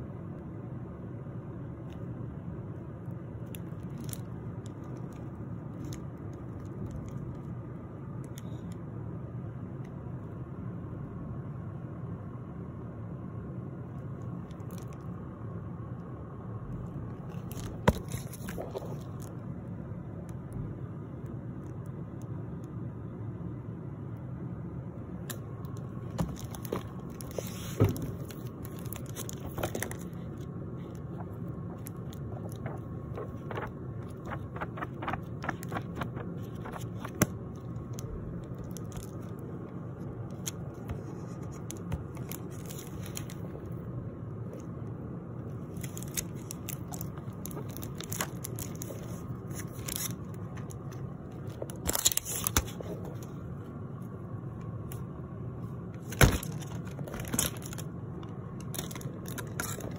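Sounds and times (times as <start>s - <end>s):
steady low hum: 0.0s - 59.9s
book pages rustling: 17.2s - 19.4s, 25.6s - 43.8s, 45.5s - 53.5s, 56.0s - 58.0s, 58.6s - 59.9s.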